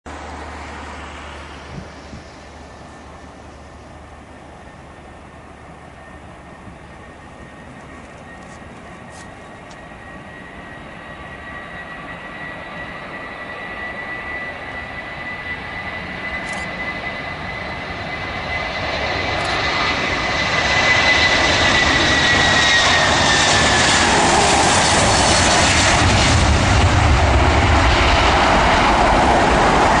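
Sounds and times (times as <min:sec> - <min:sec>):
jet engine high whine: 0:00.1 - 0:30.0
jet roar: 0:00.1 - 0:30.0.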